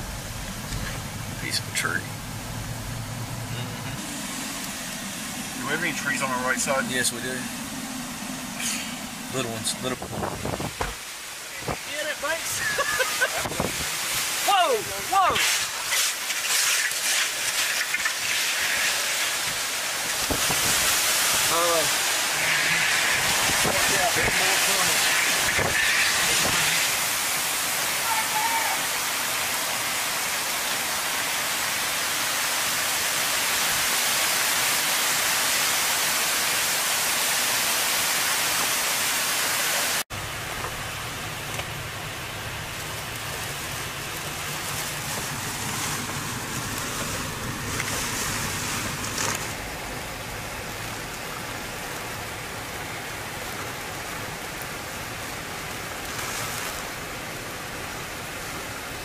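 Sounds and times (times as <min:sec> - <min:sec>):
low rumble: 0:00.0 - 0:11.4
heavy rain pouring: 0:00.0 - 0:59.0.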